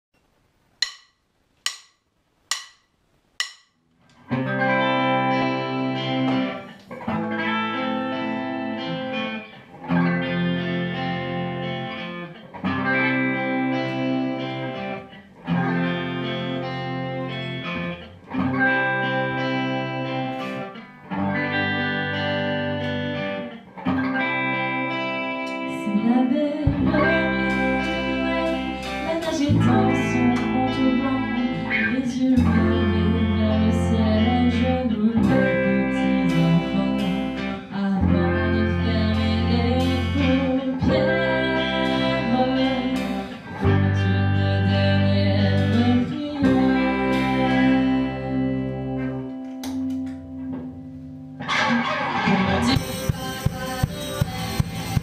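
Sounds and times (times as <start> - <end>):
count-in clicks: 0.2 - 3.8
rock band playing: 4.2 - 25.9, 26.6 - 50.8, 51.4 - 55.0
deep bass: 26.7 - 49.2.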